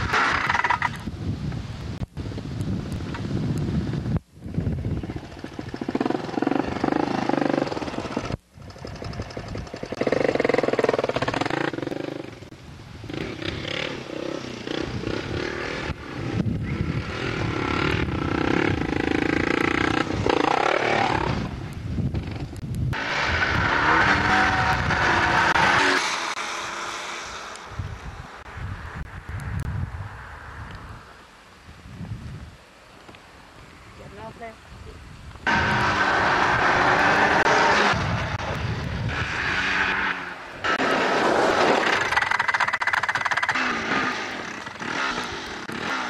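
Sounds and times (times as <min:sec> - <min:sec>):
small buggy engine revving: 0:00.0 - 0:01.0, 0:05.0 - 0:12.4, 0:13.1 - 0:21.6, 0:22.2 - 0:27.7, 0:35.4 - 0:46.0.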